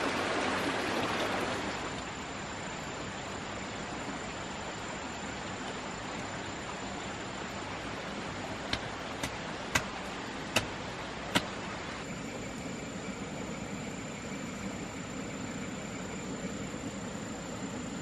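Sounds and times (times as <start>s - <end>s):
forest ambience hiss: 0.0s - 18.0s
short sharp knocks: 8.7s - 9.9s, 10.5s - 11.5s.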